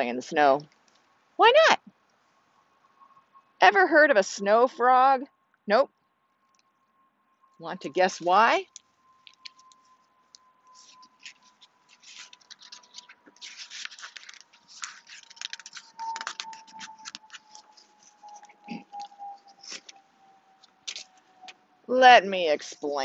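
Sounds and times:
paper pages rustling: 8.7s - 10.0s, 10.7s - 20.0s, 20.6s - 21.2s.

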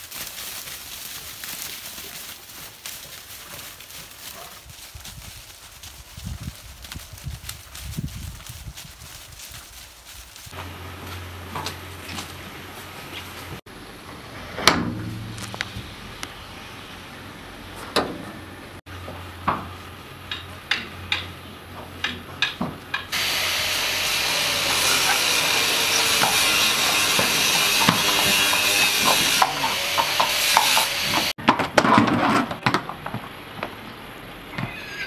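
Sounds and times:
horse hooves on concrete: 0.0s - 13.6s, 19.0s - 35.0s
loud steady hiss: 23.2s - 25.0s.

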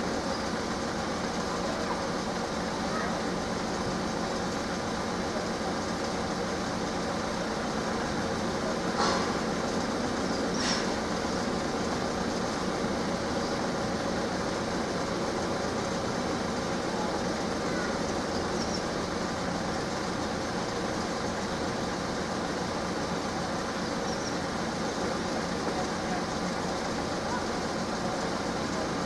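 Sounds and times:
cars idling: 0.0s - 29.0s.

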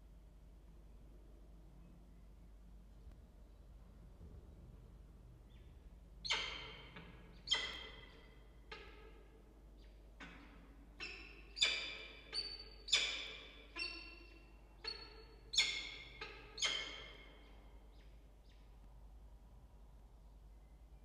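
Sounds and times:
falcon chicks begging calls: 14.8s - 17.2s.

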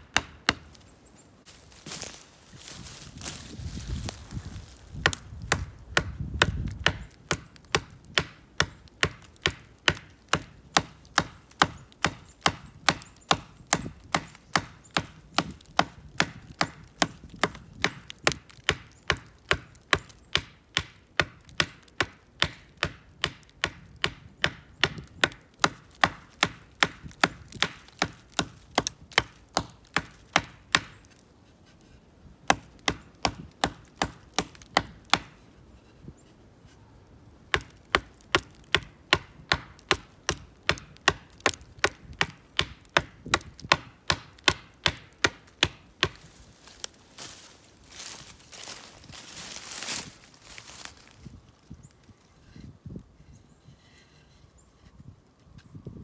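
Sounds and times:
stone axe chopping wood: 0.0s - 0.8s, 4.9s - 31.2s, 32.4s - 35.4s, 37.5s - 46.8s.

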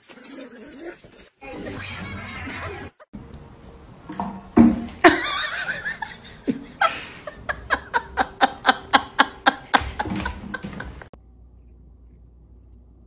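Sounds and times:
person laughing hard: 5.0s - 11.1s.

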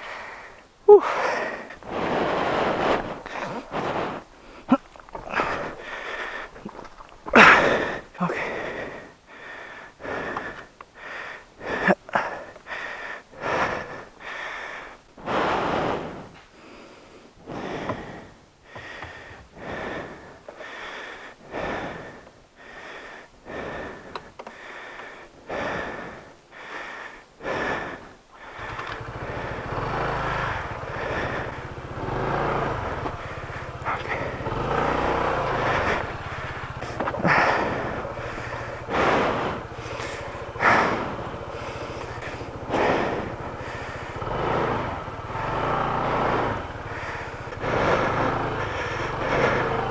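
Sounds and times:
scooter engine running: 0.0s - 9.2s, 15.3s - 16.4s, 28.4s - 49.9s
heavy rapid breathing: 0.0s - 49.9s.

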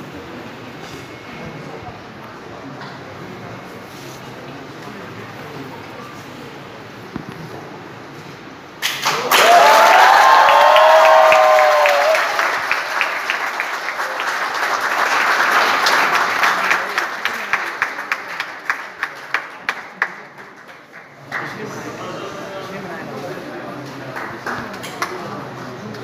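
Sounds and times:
audience applauding: 8.8s - 21.9s, 24.1s - 25.4s
voices cheering: 9.0s - 14.3s.

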